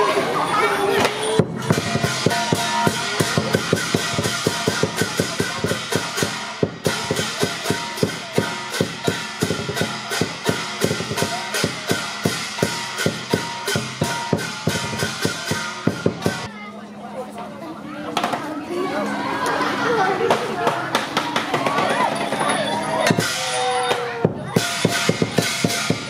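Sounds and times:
cymbals clashing: 0:00.0 - 0:16.5, 0:20.4 - 0:26.0
big drum beaten fast: 0:01.4 - 0:16.5, 0:23.0 - 0:26.0.

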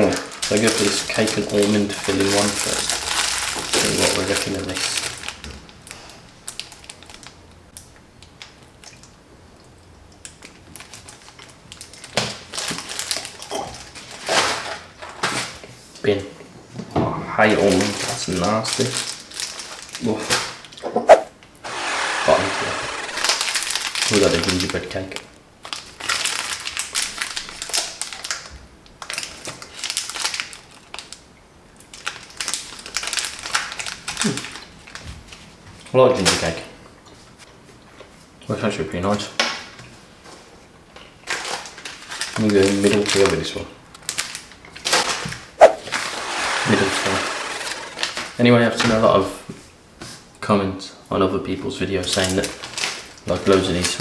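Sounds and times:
foil wrapper crinkling: 0:00.0 - 0:07.4, 0:10.2 - 0:15.6, 0:17.6 - 0:20.8, 0:22.9 - 0:31.2, 0:31.9 - 0:35.5, 0:41.2 - 0:48.4, 0:52.0 - 0:54.0.

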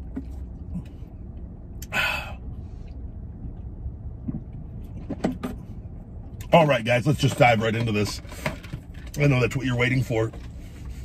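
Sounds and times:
low vehicle cab rumble: 0:00.0 - 0:11.0
man exhaling sharply: 0:01.8 - 0:02.7.

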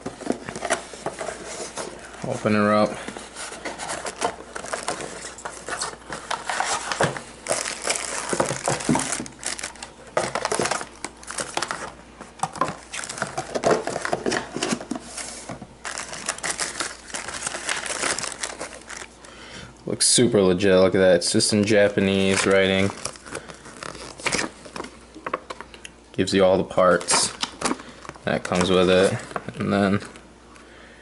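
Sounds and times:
cardboard and paper rustling: 0:00.0 - 0:19.2, 0:22.0 - 0:25.4, 0:26.8 - 0:30.2
plastic bag crinkling: 0:00.1 - 0:19.3, 0:22.0 - 0:25.0.

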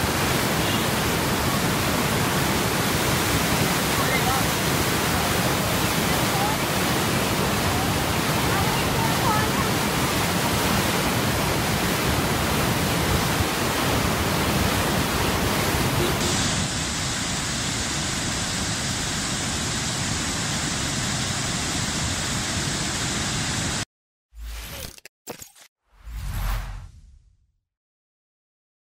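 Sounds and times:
water pouring from spillway: 0:00.0 - 0:21.6
river running over rocks: 0:00.0 - 0:22.5.

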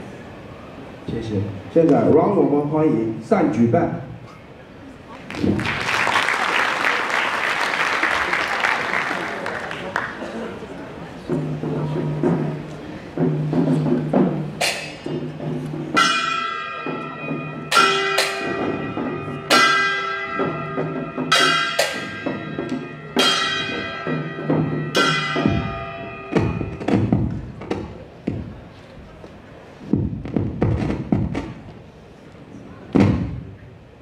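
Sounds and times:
gong cymbals and drum strikes: 0:11.3 - 0:27.3.

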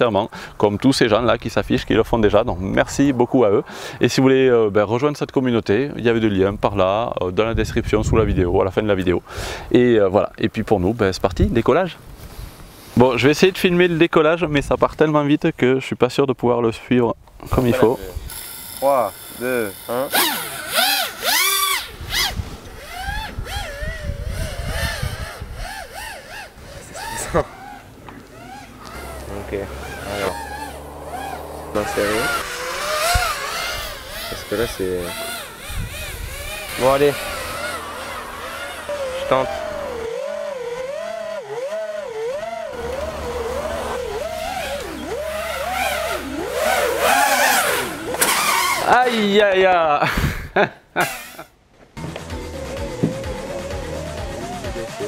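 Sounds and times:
rough low rumble: 0:01.3 - 0:05.0
drone motors whining: 0:17.4 - 0:49.1, 0:52.0 - 0:55.0.

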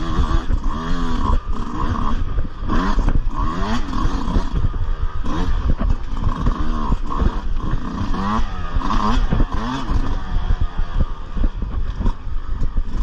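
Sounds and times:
dirt bike engine revving: 0:00.0 - 0:13.0
low rumble of wind: 0:00.0 - 0:13.0.

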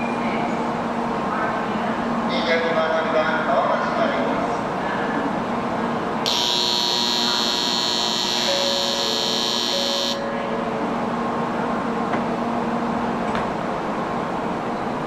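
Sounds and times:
high-pitched electronic buzzer: 0:06.3 - 0:10.3.

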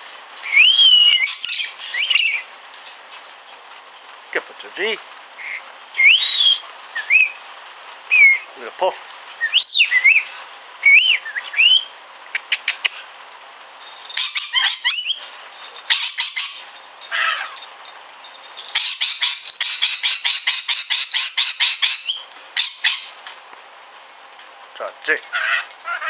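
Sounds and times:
parrot calling and chattering: 0:00.4 - 0:02.5, 0:05.4 - 0:07.4, 0:09.4 - 0:13.1, 0:14.0 - 0:17.8, 0:18.6 - 0:23.2, 0:25.2 - 0:26.0.

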